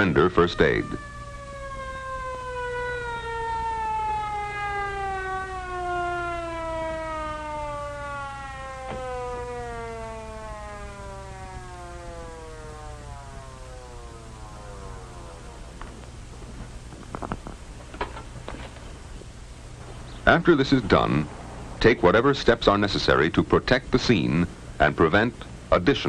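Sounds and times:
ambulance siren winding down: 0:00.0 - 0:16.0
low hum: 0:00.0 - 0:25.7.

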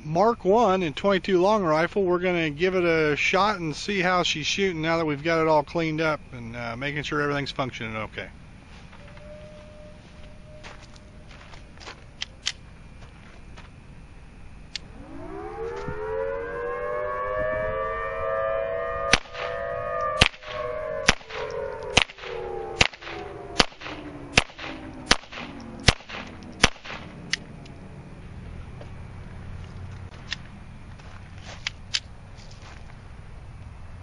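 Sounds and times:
gun handling clicks: 0:12.2 - 0:12.6, 0:24.6 - 0:27.8, 0:31.6 - 0:32.1
warning siren winding: 0:14.7 - 0:25.8
pistol shots: 0:19.1 - 0:19.6, 0:20.2 - 0:27.4.

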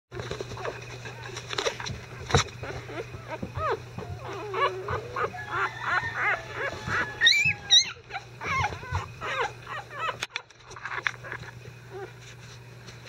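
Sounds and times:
puppies squeaking and whining: 0:00.2 - 0:12.2.

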